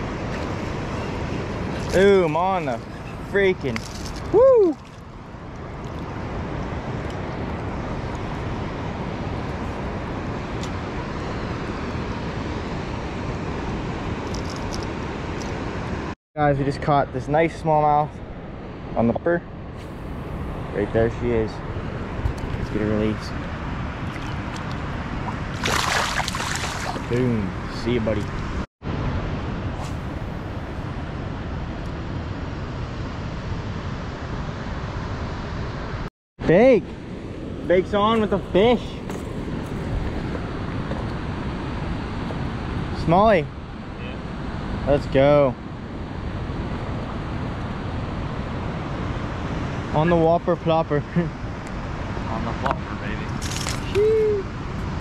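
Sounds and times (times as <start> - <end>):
steady low rushing noise: 17.2 - 25.6
water rushing from dam outlet: 23.4 - 27.5.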